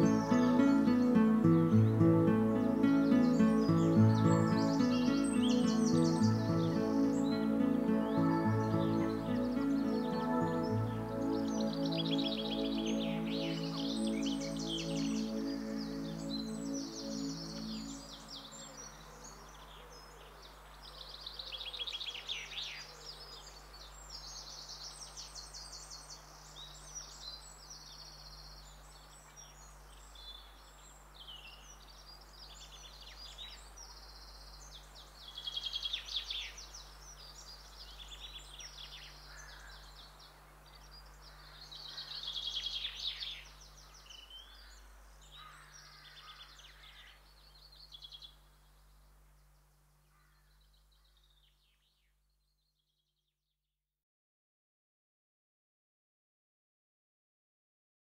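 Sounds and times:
swallows twittering: 0:00.0 - 0:19.6.

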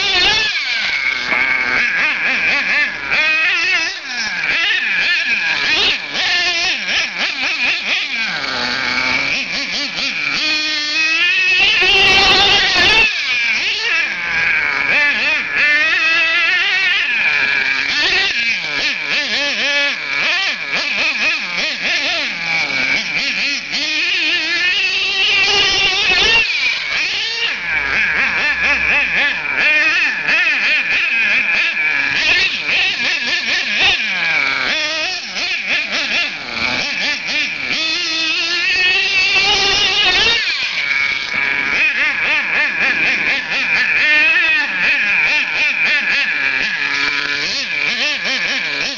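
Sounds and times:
model truck engine revving: 0:00.0 - 0:48.9.

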